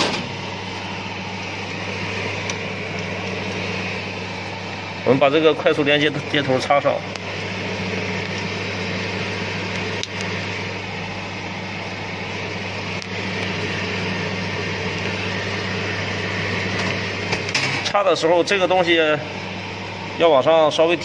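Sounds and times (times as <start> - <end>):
electric hum: 0.0 - 21.0.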